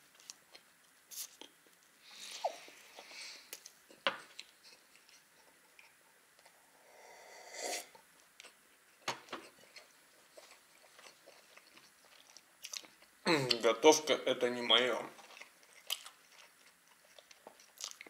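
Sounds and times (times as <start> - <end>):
chewing and lip smacks: 9.4 - 13.6, 15.2 - 18.0.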